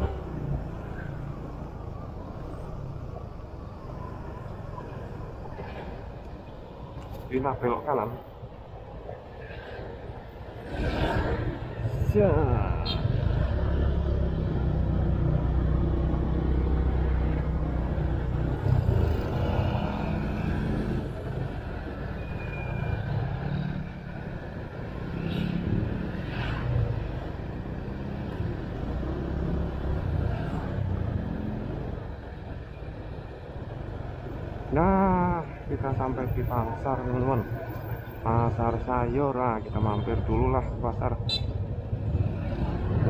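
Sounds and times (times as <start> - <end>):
road and wind noise: 0.0 - 43.0.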